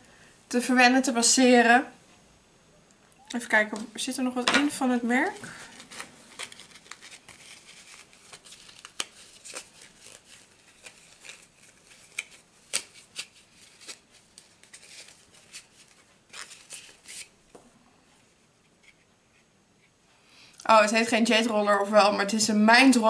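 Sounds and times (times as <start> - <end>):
packaging and paper rustling: 5.4 - 17.3.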